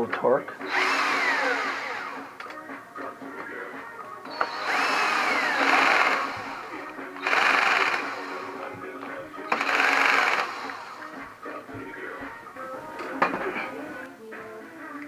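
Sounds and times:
electric screwdriver whining: 0:00.6 - 0:02.6, 0:04.3 - 0:08.7, 0:09.5 - 0:11.2.

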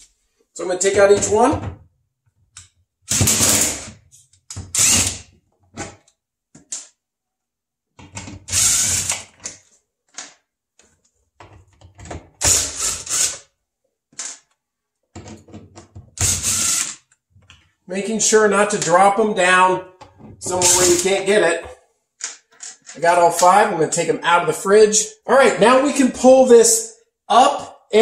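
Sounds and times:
cordless drill removing screws: 0:04.5 - 0:05.3, 0:08.4 - 0:09.5, 0:12.4 - 0:13.4, 0:16.2 - 0:17.0.

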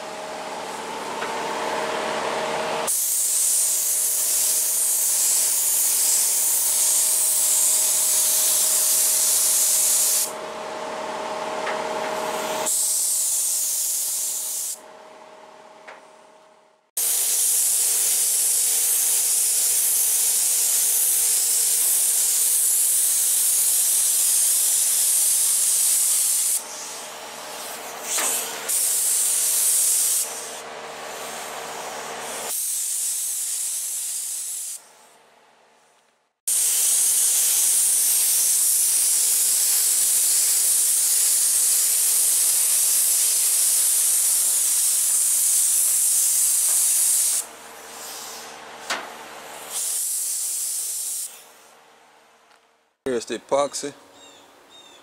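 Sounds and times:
spray gun hissing: 0:02.9 - 0:10.3, 0:12.2 - 0:14.8, 0:17.0 - 0:35.2, 0:36.5 - 0:51.7.

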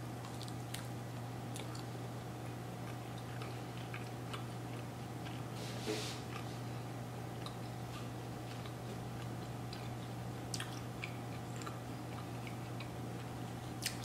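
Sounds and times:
steady low hum: 0:00.0 - 0:14.0
wet mouth clicks chewing: 0:08.6 - 0:14.0.

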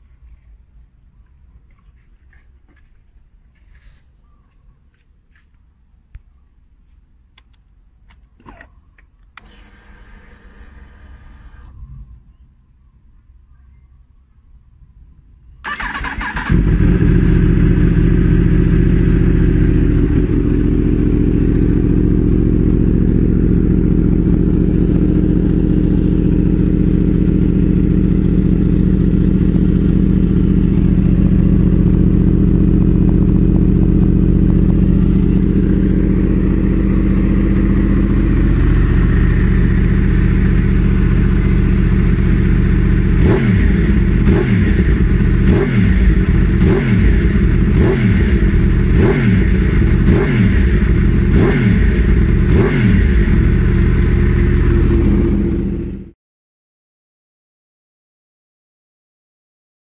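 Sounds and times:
motorcycle engine idling: 0:15.7 - 0:56.2.

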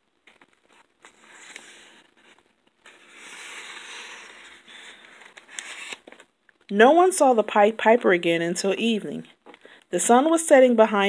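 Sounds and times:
paper page turning: 0:00.2 - 0:06.4.

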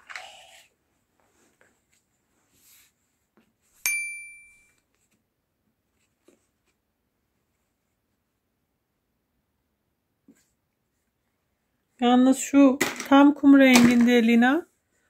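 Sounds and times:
soft handling sounds: 0:00.0 - 0:03.8, 0:04.6 - 0:08.6, 0:10.2 - 0:11.6
sharp ringing clink: 0:03.9 - 0:04.7.

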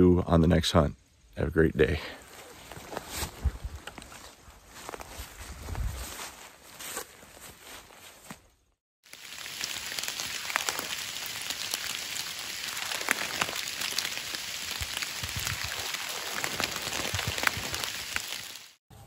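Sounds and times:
steady rain falling: 0:09.0 - 0:18.8.

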